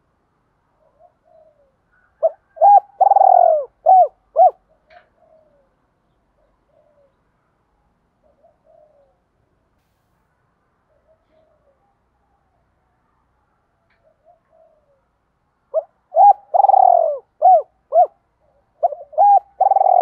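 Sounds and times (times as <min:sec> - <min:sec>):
dove cooing: 0:00.8 - 0:05.8, 0:06.4 - 0:07.2, 0:08.2 - 0:09.2, 0:14.0 - 0:15.1, 0:15.7 - 0:20.0.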